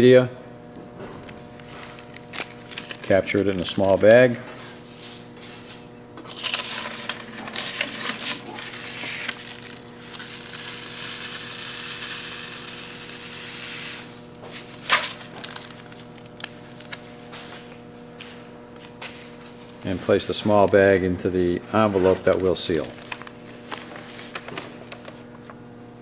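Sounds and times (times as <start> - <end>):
paper rustling: 1.3 - 4.2, 6.3 - 10.3, 14.5 - 17.6, 21.9 - 25.6.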